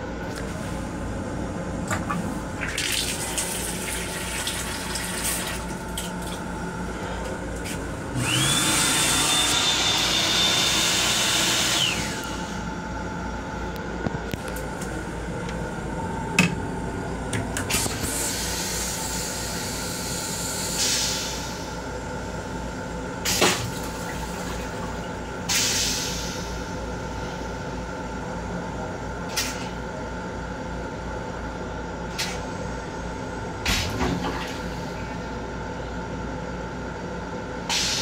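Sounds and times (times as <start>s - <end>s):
hand dryer motor whining: 7.6s - 12.6s
railcar low rumble: 12.5s - 19.8s.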